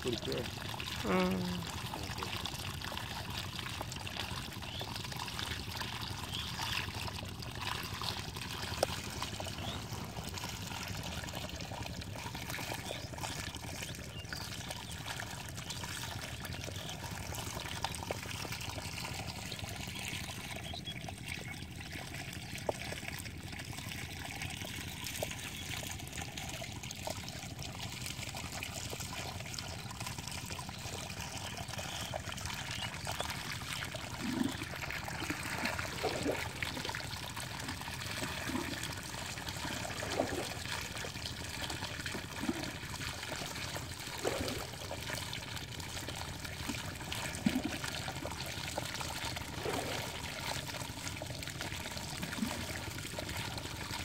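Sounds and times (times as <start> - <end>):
small water plops: 0.0 - 54.0
water trickling through a gap: 0.0 - 54.0.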